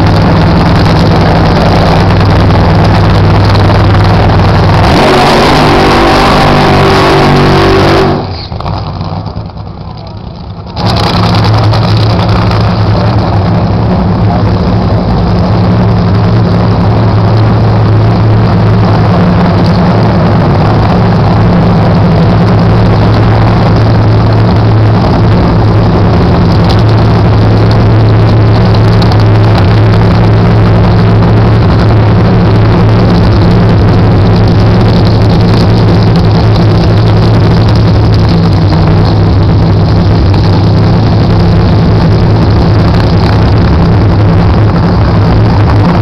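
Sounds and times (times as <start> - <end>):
race car engine idling: 0.0 - 46.0.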